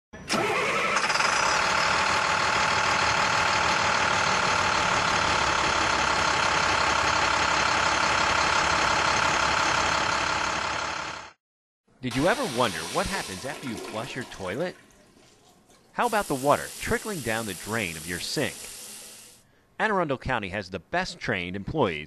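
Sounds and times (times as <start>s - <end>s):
loud machine drone: 0.3s - 11.3s.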